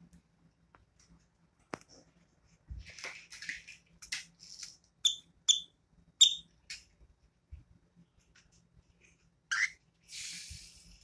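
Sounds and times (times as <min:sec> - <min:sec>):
cockatiel sharp chirps: 0:05.0 - 0:06.5
cockatiel chattering: 0:09.5 - 0:09.8.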